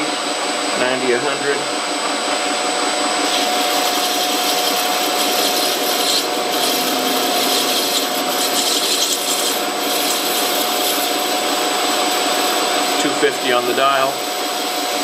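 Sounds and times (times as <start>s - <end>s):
lathe humming: 0.0s - 15.0s
lathe cutting metal scraping hiss: 3.2s - 15.0s.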